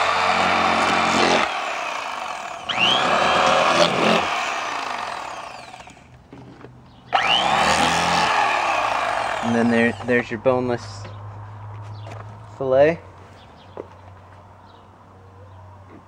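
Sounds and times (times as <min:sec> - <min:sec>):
electric knife motor buzzing: 0:00.0 - 0:06.1, 0:07.1 - 0:10.1.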